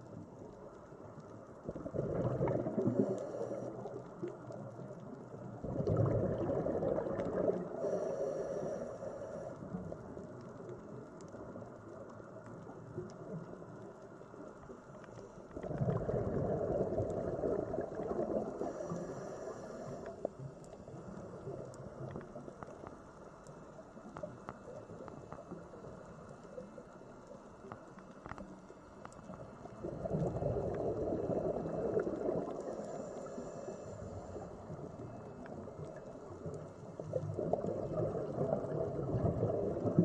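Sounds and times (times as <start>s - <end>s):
underwater background: 0.0s - 40.0s
diver exhaling bubbles underwater: 1.7s - 3.5s, 5.6s - 7.8s, 15.6s - 18.9s, 29.8s - 32.7s, 37.1s - 40.0s.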